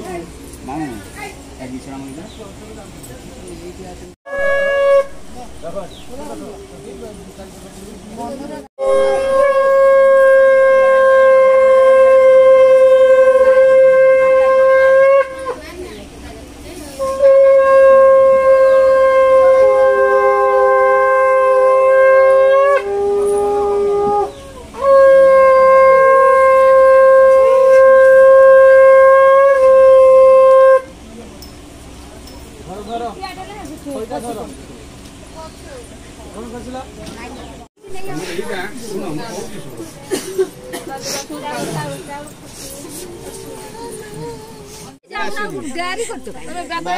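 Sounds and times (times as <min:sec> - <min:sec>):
conch shells blowing: 0:04.3 - 0:05.4, 0:08.8 - 0:15.6, 0:17.0 - 0:31.0.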